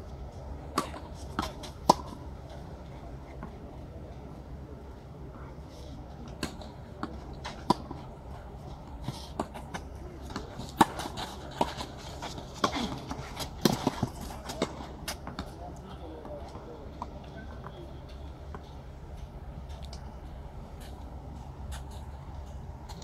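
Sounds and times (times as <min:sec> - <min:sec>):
tennis ball bouncing: 0:00.7 - 0:02.2, 0:09.0 - 0:15.5.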